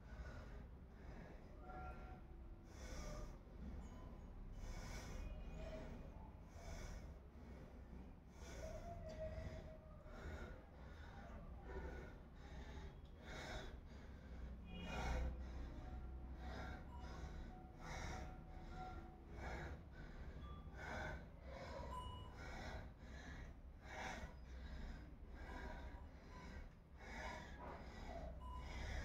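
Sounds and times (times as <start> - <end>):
person breathing hard: 0.0 - 29.0.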